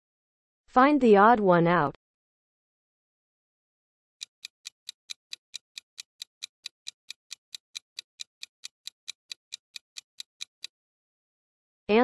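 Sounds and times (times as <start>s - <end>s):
quick clock-like ticking: 4.2s - 10.7s.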